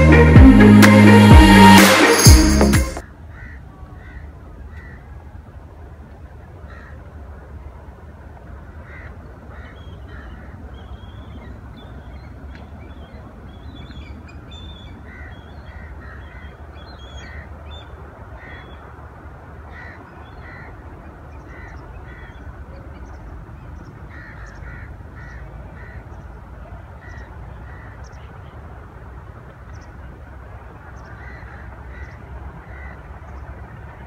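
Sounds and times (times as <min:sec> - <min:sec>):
steady low rumble: 0:00.0 - 0:03.1
birds harsh calls: 0:19.6 - 0:26.4, 0:30.9 - 0:33.6.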